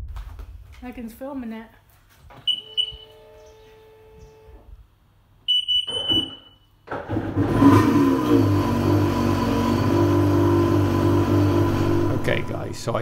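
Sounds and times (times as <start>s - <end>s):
short high beeps: 2.5s - 3.4s, 5.5s - 6.7s
engine starting and running loudly: 6.9s - 12.8s
steady electronic hum: 10.8s - 13.0s.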